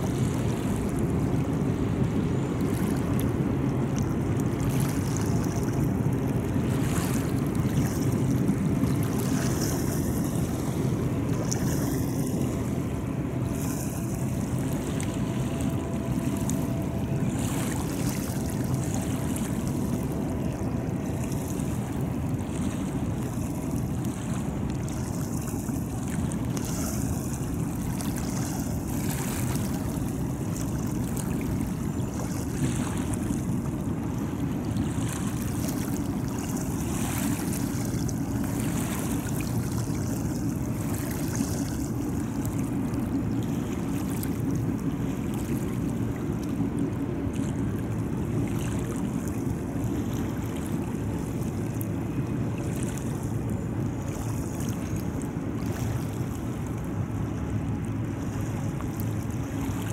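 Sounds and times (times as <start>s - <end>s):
river water lapping: 0.0s - 59.9s
wind: 0.0s - 59.9s.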